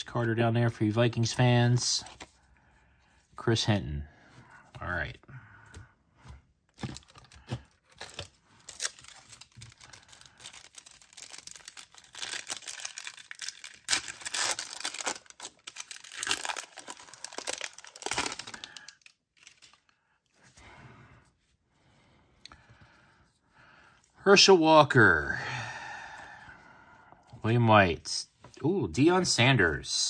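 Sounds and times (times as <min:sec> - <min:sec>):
foil wrapper tearing and crinkling: 0:06.8 - 0:19.9.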